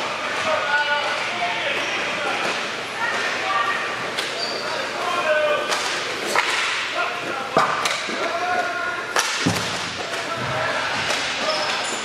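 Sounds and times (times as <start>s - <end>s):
hockey sticks cracking on court: 5.6s - 6.9s, 7.6s - 12.0s.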